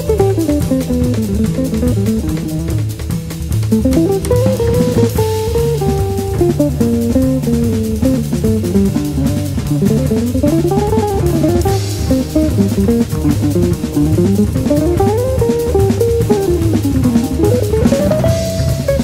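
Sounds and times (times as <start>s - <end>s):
guitar and bass music with drums: 0.0s - 19.0s
sliding melody line: 10.1s - 19.0s.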